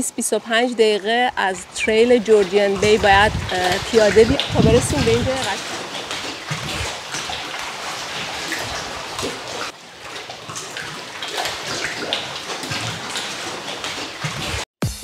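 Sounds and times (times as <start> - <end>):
water lapping against rocks: 0.0 - 14.6.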